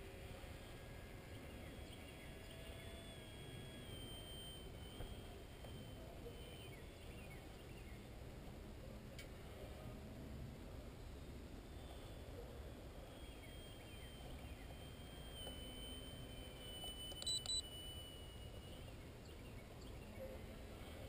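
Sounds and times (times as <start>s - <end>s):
electric motor whining: 0.0s - 6.8s
short electronic beeps: 13.5s - 18.9s.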